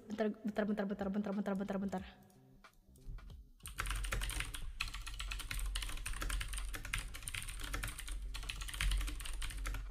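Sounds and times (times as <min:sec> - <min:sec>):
fast keyboard typing: 0:03.2 - 0:09.9.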